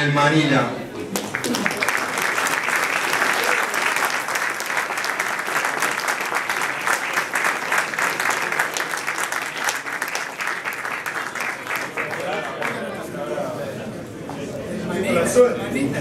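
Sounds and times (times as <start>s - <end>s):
people applauding: 1.0s - 13.3s.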